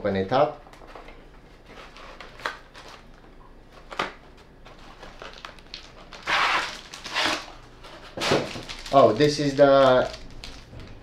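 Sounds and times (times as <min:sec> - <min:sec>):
cardboard packaging rustling: 0:03.8 - 0:11.0.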